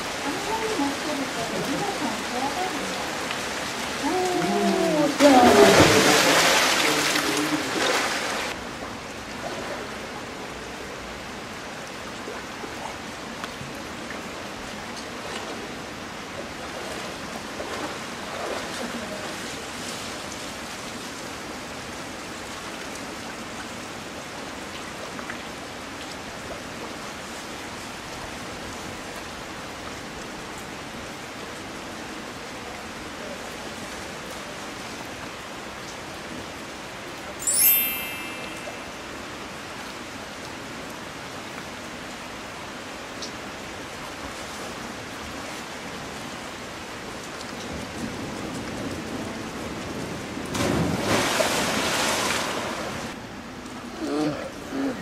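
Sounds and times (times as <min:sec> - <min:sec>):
heavy rain on water and rocks: 0:00.0 - 0:37.4, 0:38.0 - 0:55.0
big splash into pool: 0:05.2 - 0:08.6, 0:50.5 - 0:53.1.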